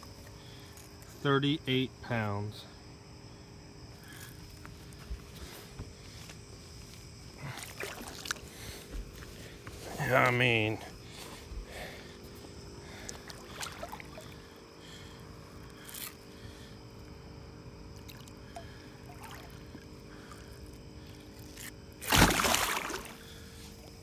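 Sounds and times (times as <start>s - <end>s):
fish splashing in water: 7.5s - 8.4s, 22.0s - 23.4s.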